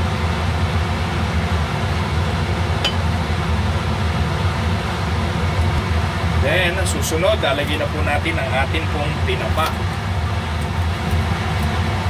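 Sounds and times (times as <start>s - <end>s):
kitchen fan whirring: 0.0s - 12.0s.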